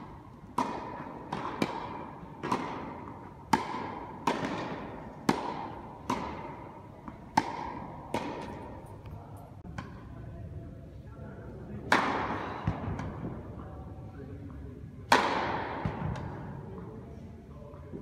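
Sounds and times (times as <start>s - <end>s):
tennis ball struck and bouncing: 0.0s - 8.9s, 11.9s - 13.2s, 15.1s - 16.4s.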